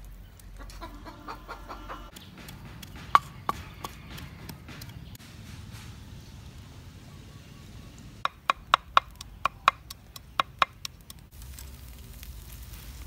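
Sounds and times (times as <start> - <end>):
hen clucking: 0.6 - 5.2
pestle knocking in mortar: 2.1 - 5.2, 8.3 - 11.0.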